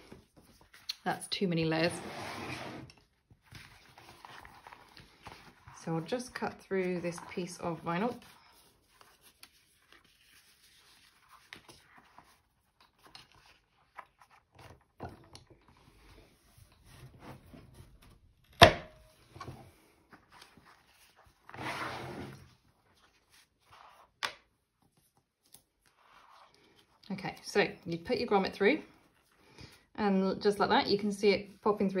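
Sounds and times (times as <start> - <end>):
rustling scrape: 1.8 - 3.0, 19.9 - 24.1.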